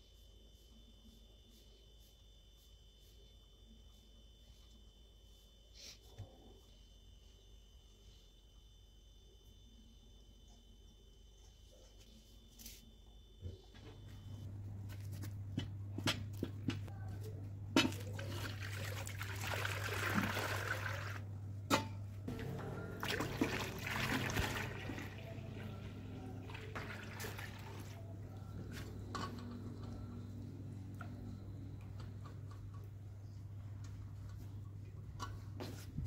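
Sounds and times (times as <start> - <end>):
milk pouring and sloshing: 17.8 - 21.3, 22.3 - 30.0
low hum: 21.2 - 36.0.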